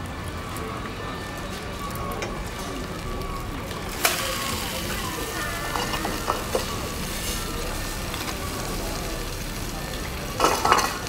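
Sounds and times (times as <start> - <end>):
omelette sizzling in oil: 2.4 - 11.0.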